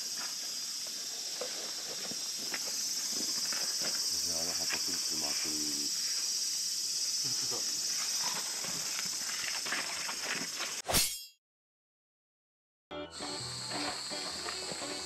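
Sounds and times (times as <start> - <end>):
insects shrilling: 0.0 - 10.9.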